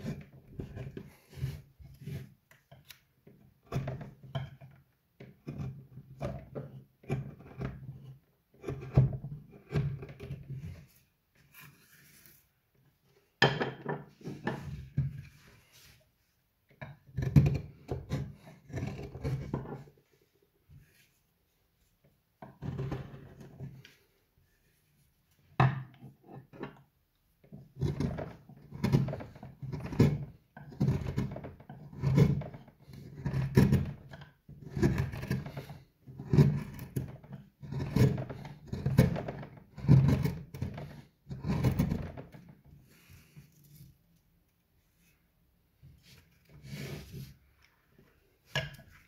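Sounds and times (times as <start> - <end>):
chisel scraping wood: 0.0 - 12.5, 16.8 - 21.2, 22.4 - 24.2, 27.5 - 44.0, 45.9 - 47.4.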